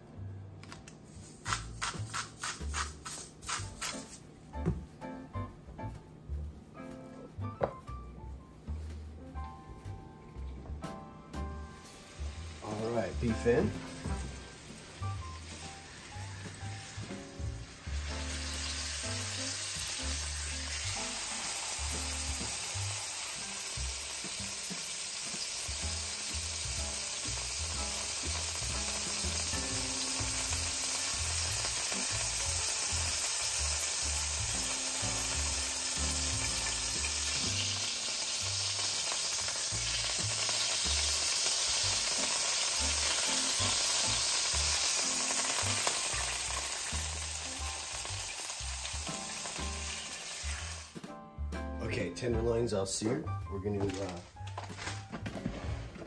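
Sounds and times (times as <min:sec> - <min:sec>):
meat sizzling in oil: 0:11.8 - 0:51.0.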